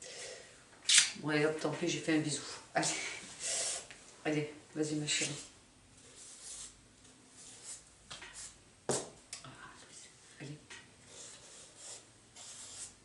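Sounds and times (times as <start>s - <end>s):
pen scratching on paper: 11.1s - 13.0s.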